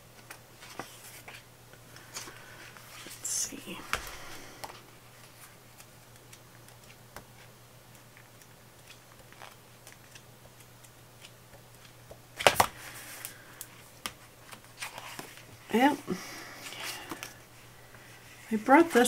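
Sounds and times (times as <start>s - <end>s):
page turning rustle: 0.1s - 3.2s, 3.8s - 15.6s.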